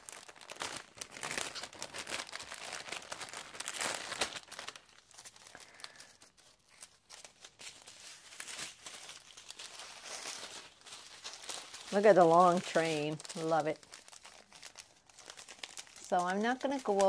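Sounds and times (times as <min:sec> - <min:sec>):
plastic packets crinkling: 0:00.0 - 0:17.0.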